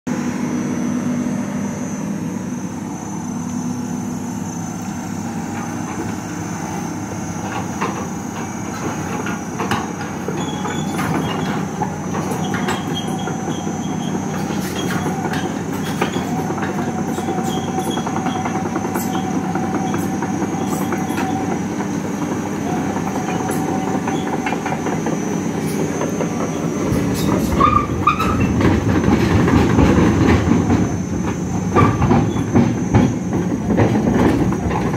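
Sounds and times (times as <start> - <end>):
diesel engine running: 0.1 - 34.9
track links clanking and squealing: 2.9 - 34.9.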